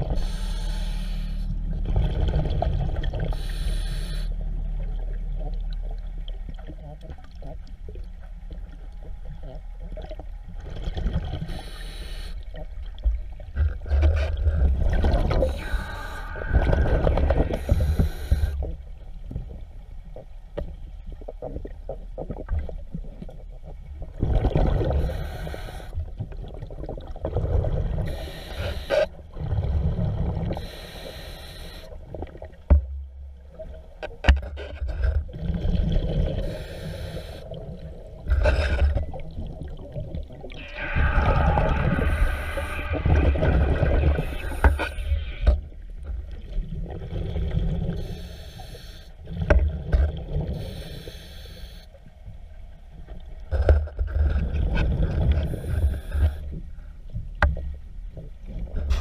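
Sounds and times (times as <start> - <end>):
regulator inhale hiss: 0.1 - 1.6, 3.3 - 4.4, 11.5 - 12.5, 15.4 - 18.7, 25.0 - 26.0, 28.1 - 29.1, 30.5 - 32.0, 36.4 - 37.6, 40.9 - 45.5, 48.0 - 49.2, 50.6 - 52.0
exhaled air bubbling: 1.5 - 19.7, 21.1 - 33.9, 35.1 - 51.2.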